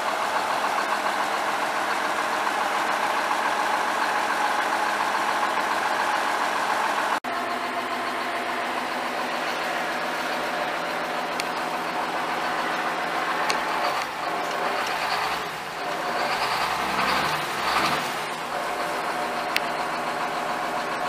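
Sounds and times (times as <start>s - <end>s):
tractor diesel engine running: 0.0s - 21.0s.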